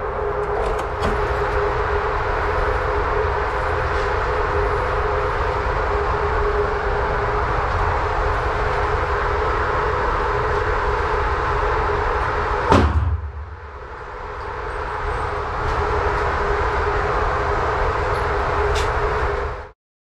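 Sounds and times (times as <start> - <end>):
machinery rumble with faint hum: 0.0 - 19.7
gunshot bang: 12.7 - 13.6.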